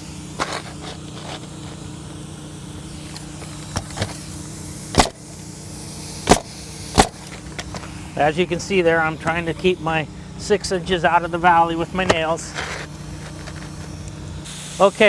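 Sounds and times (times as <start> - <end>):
low motor hum: 0.0 - 15.0
nail gun shots: 4.9 - 5.2, 6.2 - 7.3.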